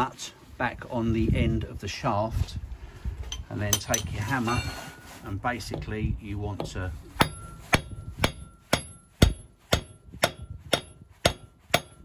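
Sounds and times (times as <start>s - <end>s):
hammer striking steel nut: 6.6s - 12.0s.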